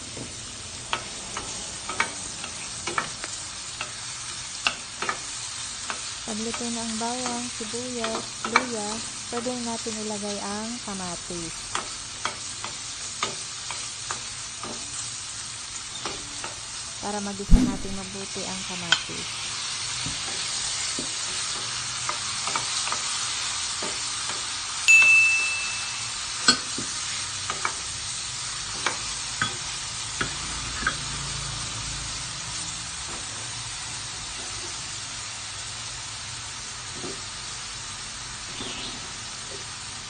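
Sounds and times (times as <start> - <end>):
vegetables sizzling in a pot: 0.0 - 40.0
short chime: 24.9 - 26.2.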